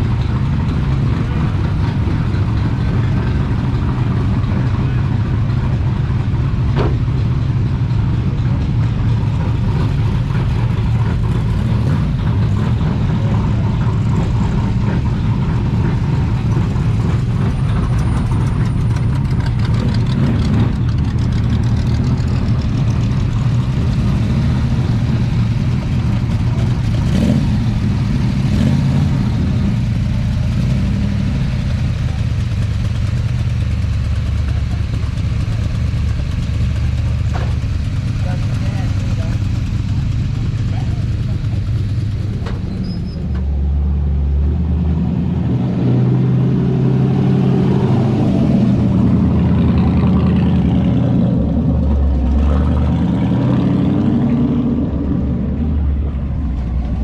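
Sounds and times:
car engine idling: 0:00.0 - 0:44.4.

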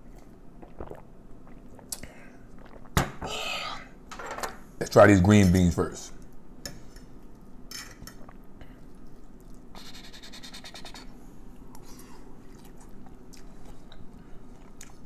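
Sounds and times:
chewing food: 0:11.6 - 0:15.0.

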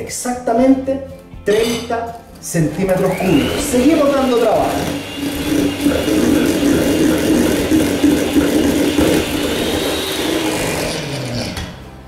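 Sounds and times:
electric hand mixer whirring: 0:02.5 - 0:12.0.

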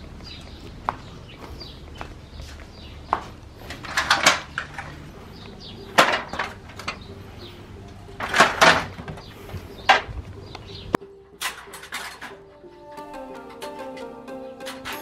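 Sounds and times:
metal stepladder clanking: 0:03.7 - 0:07.1, 0:08.2 - 0:10.1, 0:11.4 - 0:12.5, 0:14.6 - 0:15.0.

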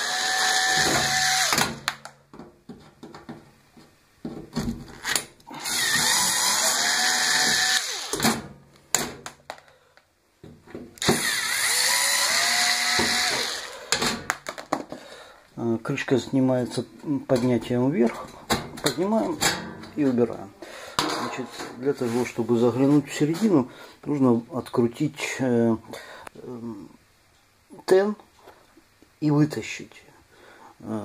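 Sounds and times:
power drill whine: 0:00.0 - 0:01.7, 0:05.5 - 0:08.3, 0:11.0 - 0:14.0.

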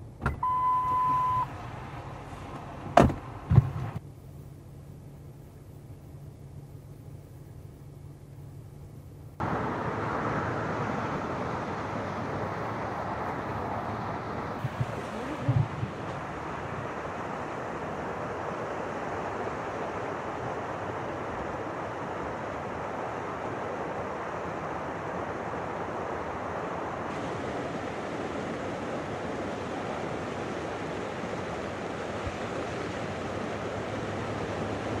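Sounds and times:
floodwater rushing: 0:09.4 - 0:35.0.

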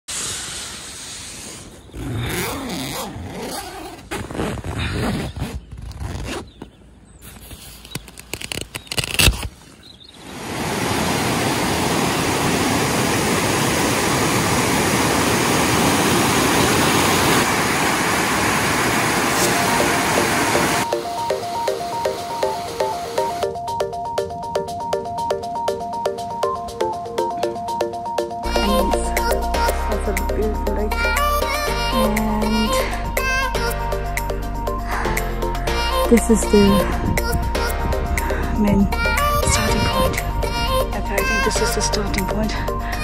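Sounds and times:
tent fabric rustling: 0:01.4 - 0:10.1
stream water rushing over rocks: 0:10.2 - 0:23.4.

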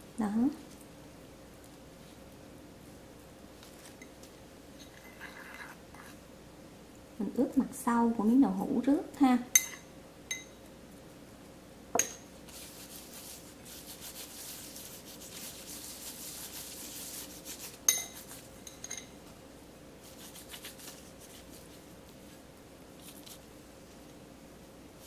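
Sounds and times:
metal spoon clinking on bowl: 0:09.5 - 0:10.6, 0:12.0 - 0:12.2, 0:17.9 - 0:19.2
gloved fingers rubbing tofu: 0:12.4 - 0:18.6, 0:20.0 - 0:23.8.

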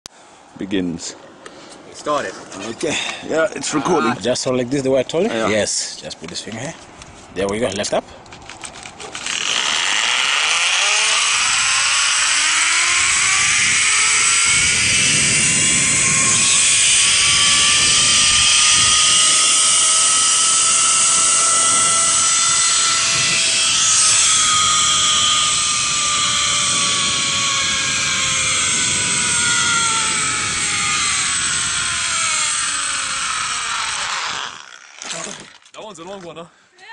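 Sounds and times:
wind on microphone: 0:08.2 - 0:34.6
zip line pulley whine: 0:09.0 - 0:35.7.

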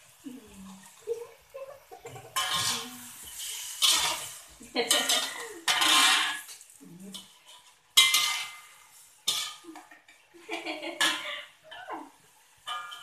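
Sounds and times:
metal spatula scraping wok: 0:02.0 - 0:10.2, 0:10.9 - 0:13.0.

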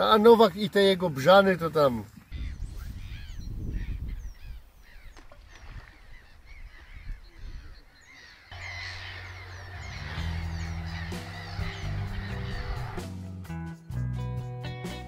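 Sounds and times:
birds calling: 0:00.0 - 0:13.2
music with low notes: 0:08.6 - 0:15.0.

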